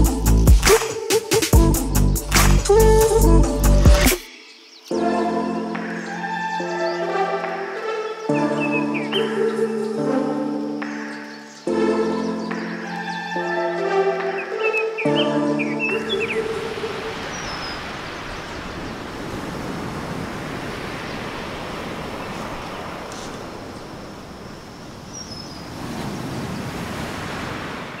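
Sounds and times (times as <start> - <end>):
music: 0.0 - 17.2
high bird chirps: 10.9 - 13.5.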